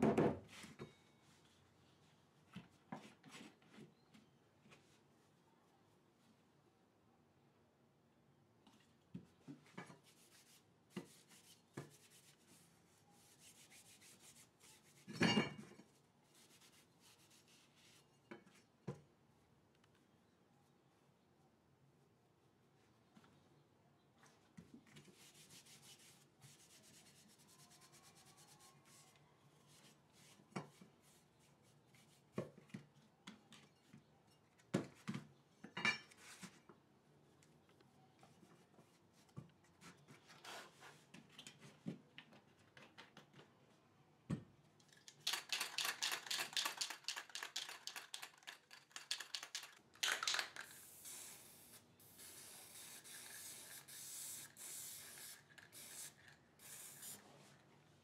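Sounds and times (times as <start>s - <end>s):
aerosol spray hissing: 50.7s - 57.2s.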